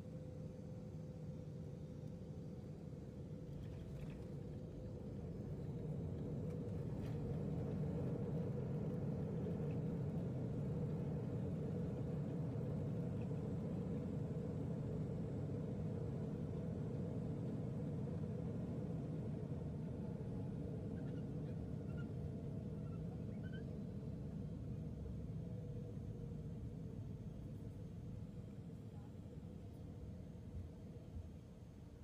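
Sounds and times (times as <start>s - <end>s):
jet engines rumbling: 3.7s - 24.6s.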